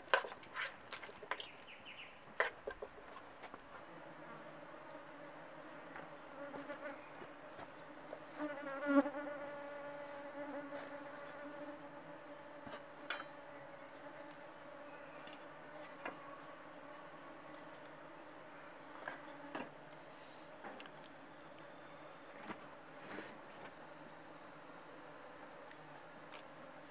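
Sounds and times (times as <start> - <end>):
flying insect buzzing: 3.8 - 20.6.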